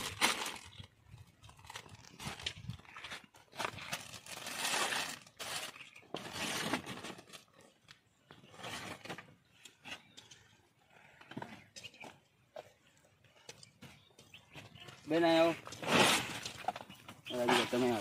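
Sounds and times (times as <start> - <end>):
plastic bags rustling: 0.0 - 7.7.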